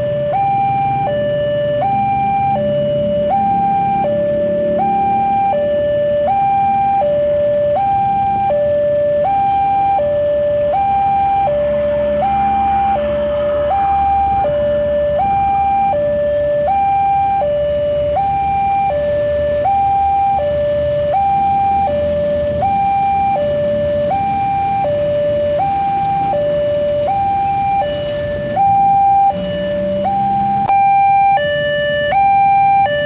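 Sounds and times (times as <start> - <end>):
road traffic rumble: 0.0 - 33.0
two-tone level crossing alarm: 0.0 - 33.0.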